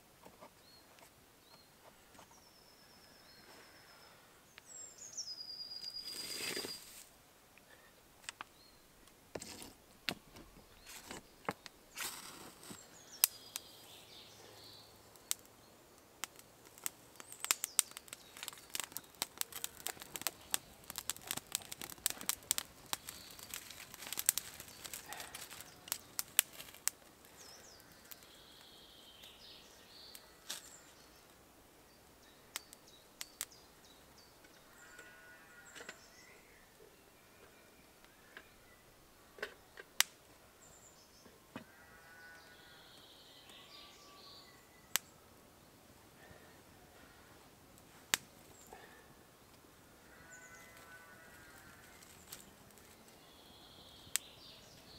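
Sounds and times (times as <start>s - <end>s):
wood fire crackling and popping: 10.9s - 14.1s, 14.9s - 31.4s, 39.9s - 40.2s, 47.8s - 48.9s, 50.7s - 53.2s, 53.9s - 54.9s
birds chirping: 12.6s - 47.4s, 48.4s - 54.9s.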